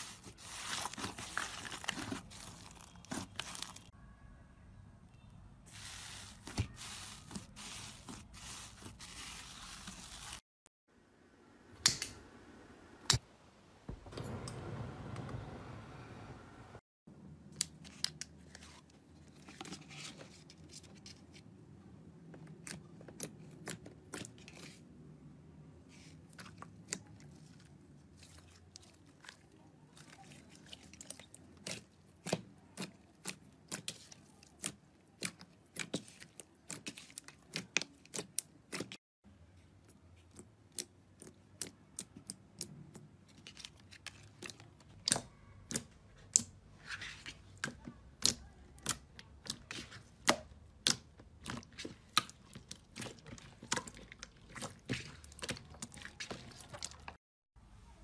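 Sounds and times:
soft squelching rustle: 5.7 - 10.5, 25.8 - 39.0.

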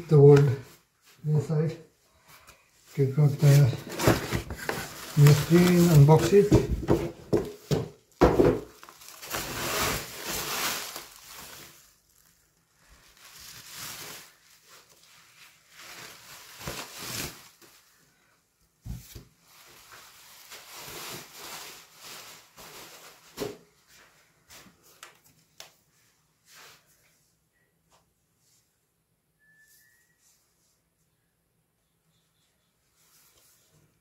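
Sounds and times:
bubble wrap rustling and crinkling: 2.8 - 26.9.

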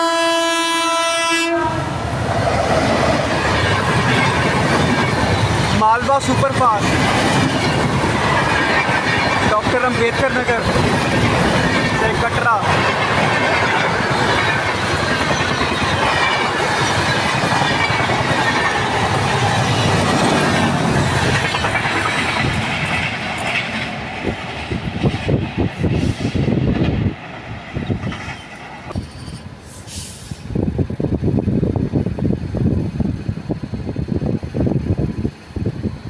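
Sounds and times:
train wheels rushing on rail: 0.0 - 36.0
wheels clickety-clack over rail joints: 2.2 - 29.5.

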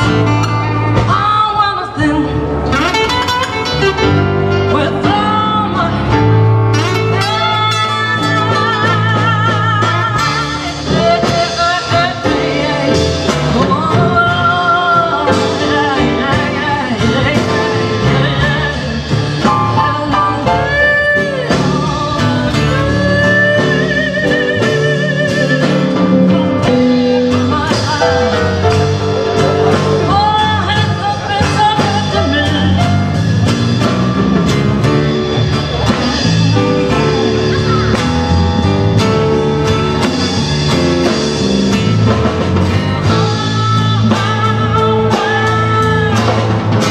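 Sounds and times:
woman singing: 0.0 - 33.3, 43.0 - 46.9
acoustic guitar: 0.0 - 46.9
electric bass: 0.0 - 46.9.

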